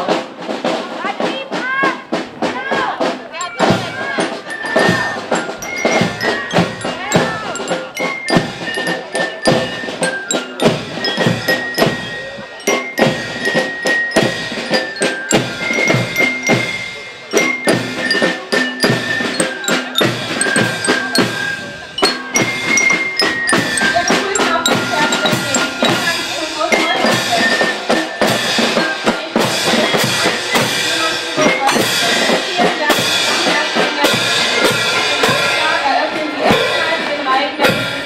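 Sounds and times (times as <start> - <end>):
snare drum beat: 0.0 - 38.0
bell lyre melody: 3.3 - 37.4.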